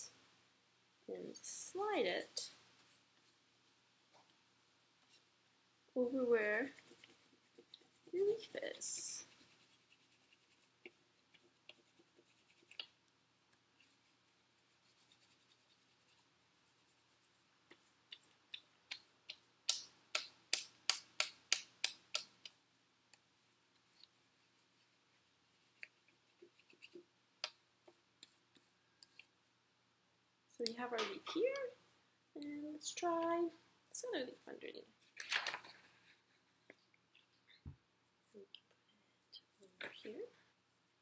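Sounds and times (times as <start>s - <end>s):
crayon rubbing on paper: 6.2s - 12.9s, 13.8s - 18.3s.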